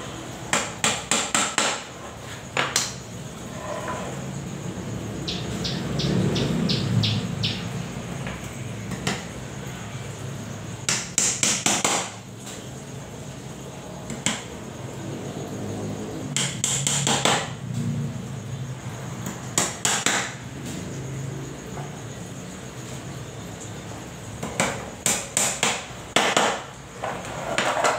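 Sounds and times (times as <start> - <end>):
claw hammer nailing into wood: 10.9 - 12.2, 24.4 - 26.6.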